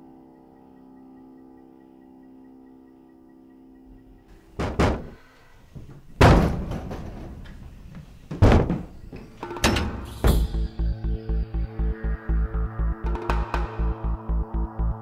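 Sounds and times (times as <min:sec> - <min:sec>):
droning music chord: 0:00.0 - 0:04.4, 0:09.4 - 0:15.0
loud heavy thuds: 0:04.6 - 0:10.7.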